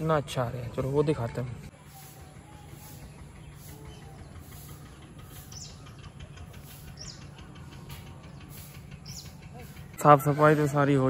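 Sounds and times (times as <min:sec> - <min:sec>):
birds chirping: 0:00.0 - 0:11.0
steady low rumble: 0:01.6 - 0:10.2
high falling bird calls: 0:01.6 - 0:10.9.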